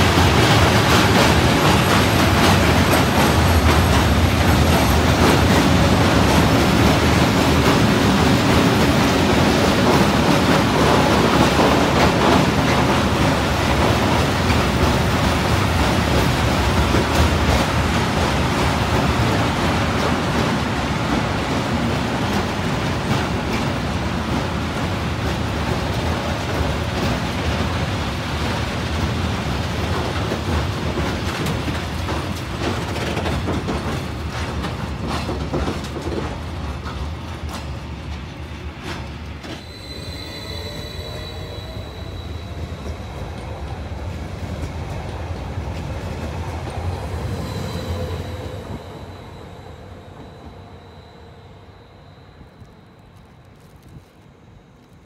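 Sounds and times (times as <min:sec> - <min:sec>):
train wheels clicking over rail joints: 0:00.0 - 0:39.6
freight train rumbling past: 0:00.0 - 0:55.0
electric train traction whine: 0:39.2 - 0:54.9.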